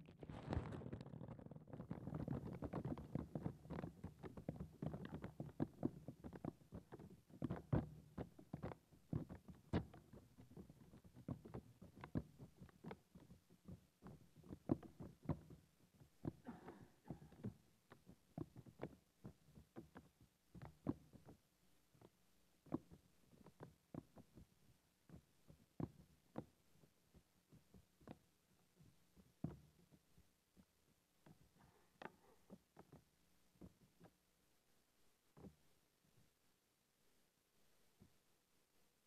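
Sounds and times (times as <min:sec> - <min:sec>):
paper crackling on microphone: 0:00.0 - 0:20.1.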